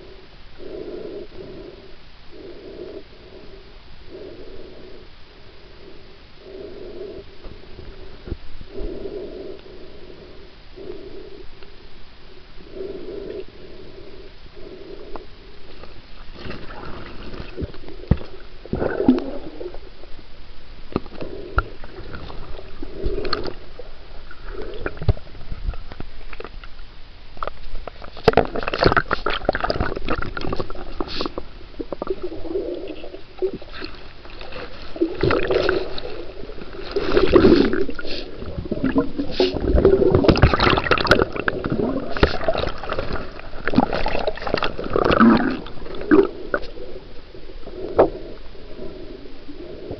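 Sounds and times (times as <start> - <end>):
water sloshing and splashing: 33.5 - 46.8.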